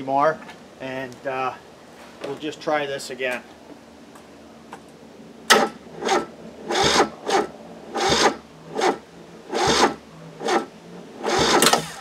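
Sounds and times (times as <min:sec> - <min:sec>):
diesel engine cranking slowly: 0:04.8 - 0:12.0.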